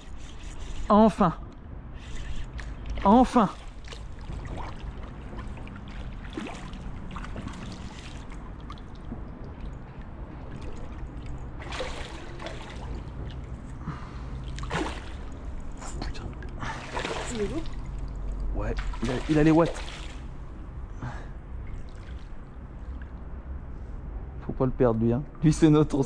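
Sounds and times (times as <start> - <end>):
low steady rumble: 0.0 - 26.0
fish splashing in water: 2.0 - 15.8, 16.4 - 20.4.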